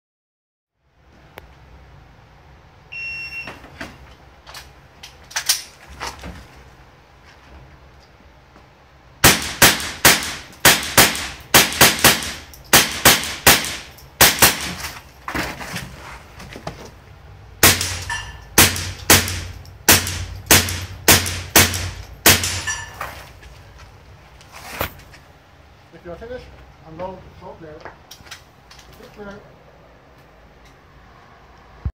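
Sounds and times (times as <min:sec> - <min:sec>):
shot timer beep: 0:03.0 - 0:03.5
rifle shots: 0:09.2 - 0:14.8, 0:17.6 - 0:22.8.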